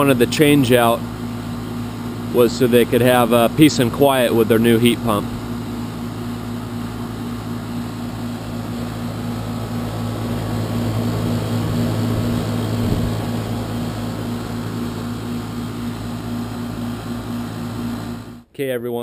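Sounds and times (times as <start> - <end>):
fan rushing: 0.0 - 18.5
heat pump humming: 0.0 - 18.5.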